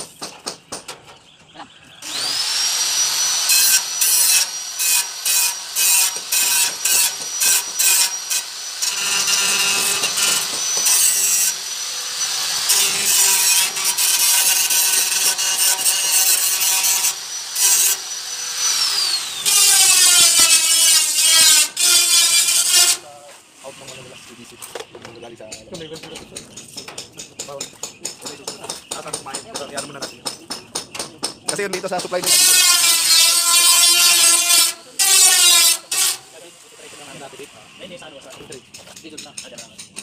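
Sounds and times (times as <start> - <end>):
power tool whining: 2.0 - 23.1, 32.0 - 37.7
tool grinding stainless steel: 2.0 - 23.1, 31.8 - 37.5.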